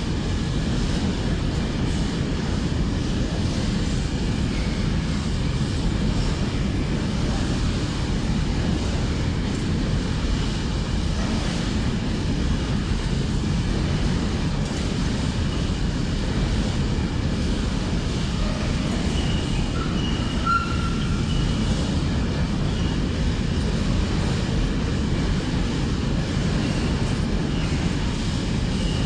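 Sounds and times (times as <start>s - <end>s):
train wagons rolling on rails: 0.0s - 29.0s.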